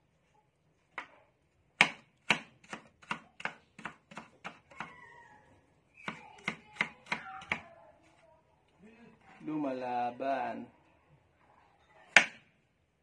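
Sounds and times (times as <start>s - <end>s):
cleaver chopping on cutting board: 1.8s - 4.9s.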